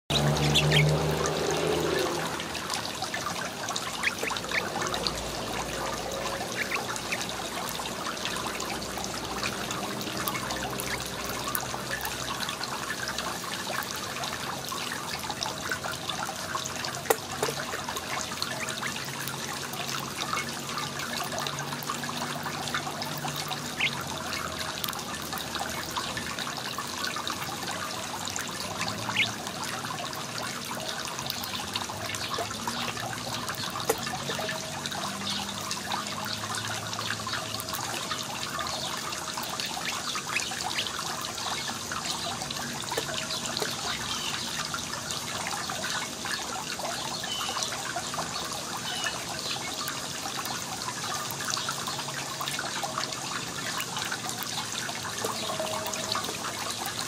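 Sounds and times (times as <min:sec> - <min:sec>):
birds pecking seeds: 0:00.1 - 0:02.2.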